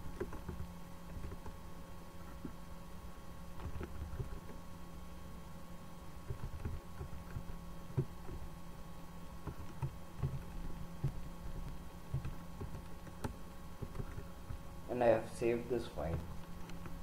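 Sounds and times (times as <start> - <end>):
computer keyboard typing: 0.0 - 1.6, 3.6 - 4.6, 6.2 - 8.5, 9.4 - 14.6
low electrical hum: 0.0 - 17.0.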